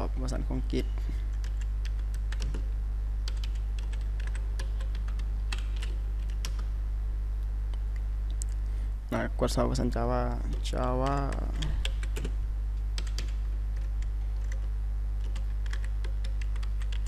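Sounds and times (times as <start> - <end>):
steady low hum: 0.0 - 17.0
keyboard typing clicks: 1.3 - 2.6, 3.2 - 6.7, 10.5 - 12.3, 13.0 - 17.0.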